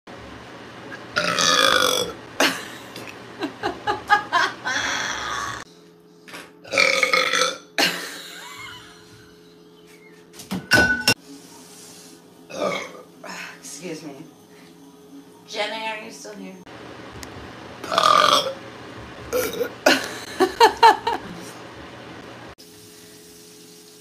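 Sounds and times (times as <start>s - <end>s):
woman burping loudly: 1.2s - 2.6s, 6.7s - 8.2s, 12.5s - 13.0s, 17.8s - 18.6s.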